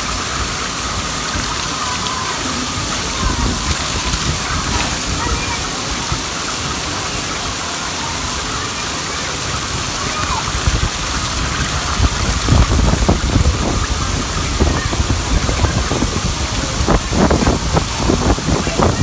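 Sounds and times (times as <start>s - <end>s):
water pouring and splashing: 0.0s - 19.0s
low thumps and rumbles: 10.6s - 19.0s.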